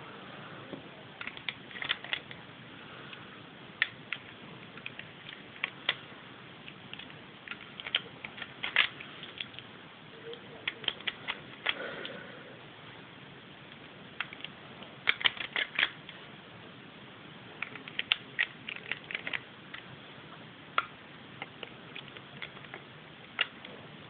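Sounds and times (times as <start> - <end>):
plastic bricks clicking and rattling: 1.2 - 2.4, 6.7 - 9.6, 10.6 - 11.8, 14.2 - 16.0, 17.6 - 19.9, 20.8 - 23.7.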